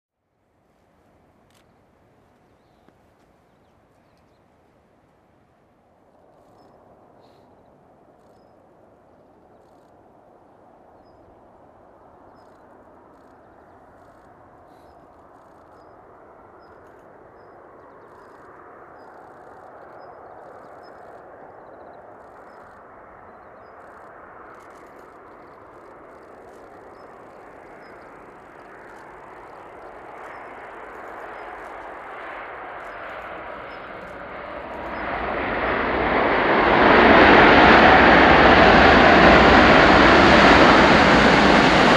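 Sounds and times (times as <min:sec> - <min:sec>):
airliner passing close: 0:06.0 - 0:41.9
jet airliner rushing: 0:16.0 - 0:41.9.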